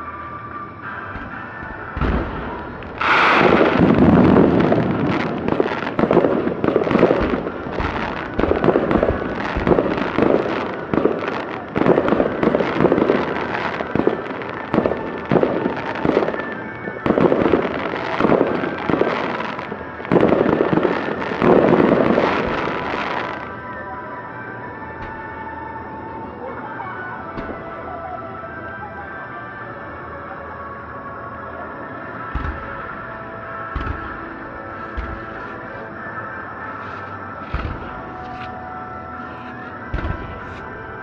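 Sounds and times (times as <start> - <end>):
fireworks crackling: 0.0 - 28.3, 31.7 - 41.0
fireworks shells bursting: 1.0 - 23.5, 32.3 - 36.0, 36.7 - 38.6.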